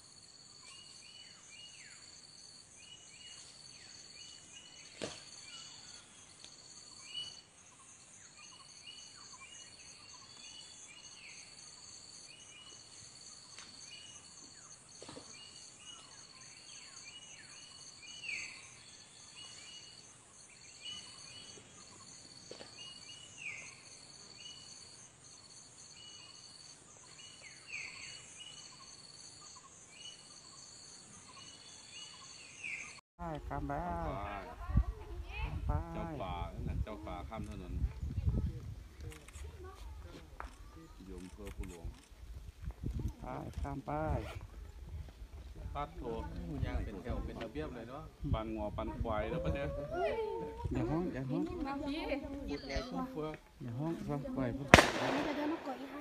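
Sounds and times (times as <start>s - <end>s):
birds chirping: 40.4s - 56.0s.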